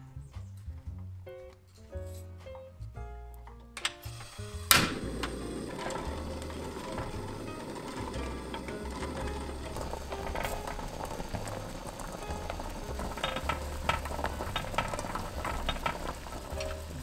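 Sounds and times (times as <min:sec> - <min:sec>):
swing music with walking bass: 0:00.0 - 0:17.0
pot of water boiling: 0:04.2 - 0:17.0.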